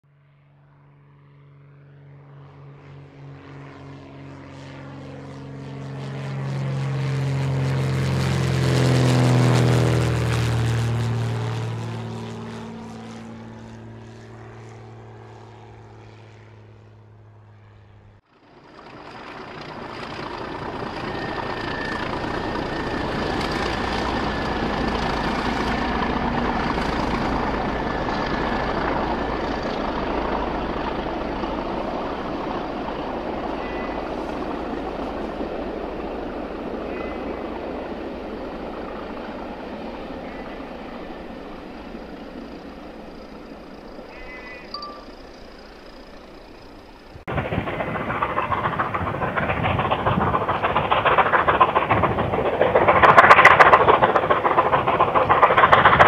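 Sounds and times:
propeller aircraft passing over: 0:00.1 - 0:56.0
diesel locomotive running: 0:16.5 - 0:56.0
thin high whine: 0:43.2 - 0:47.2.

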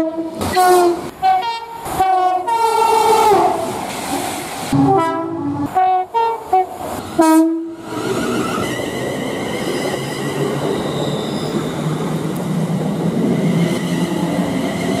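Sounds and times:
locomotive two-tone horn blasts: 0:00.0 - 0:03.7, 0:04.8 - 0:07.8
train rumbling: 0:00.0 - 0:15.0.

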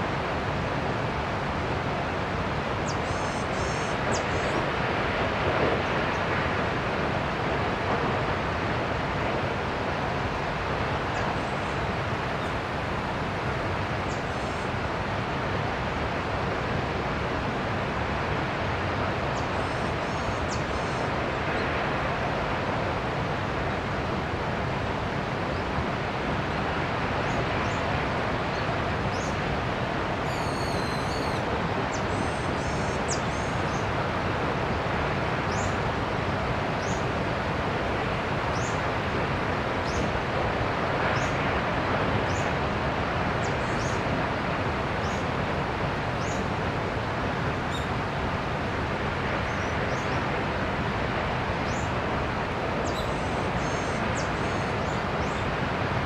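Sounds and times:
distant waterfall rushing: 0:00.0 - 0:56.0
patterned bird call: 0:30.3 - 0:31.4.

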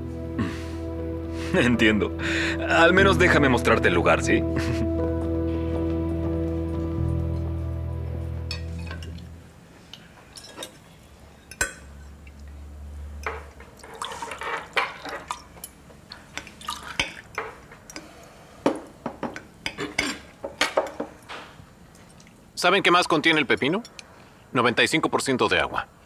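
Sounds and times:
background music: 0:00.0 - 0:09.5
cutlery clinking on plates: 0:08.5 - 0:09.2, 0:11.4 - 0:12.0, 0:18.7 - 0:21.5.

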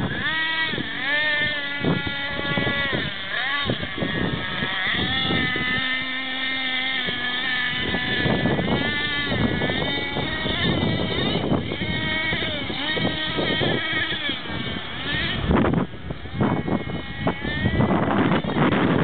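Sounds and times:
small glow engine revving: 0:00.0 - 0:19.0.

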